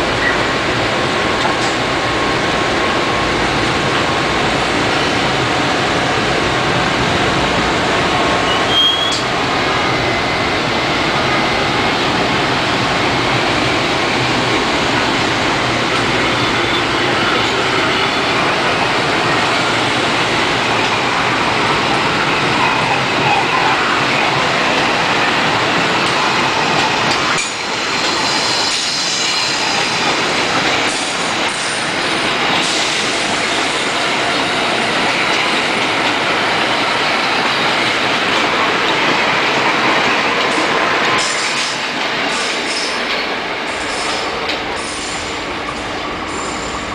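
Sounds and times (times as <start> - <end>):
train rushing past: 0.0 - 46.9
high wheel squeal: 8.4 - 9.3.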